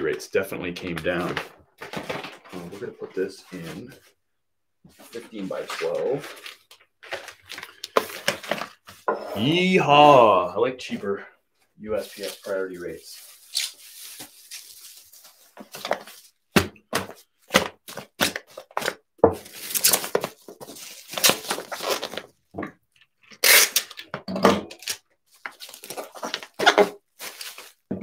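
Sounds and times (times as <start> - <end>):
packaging rustling and crinkling: 1.1 - 4.0, 5.1 - 9.1, 12.0 - 16.4, 17.0 - 22.4, 24.7 - 27.9.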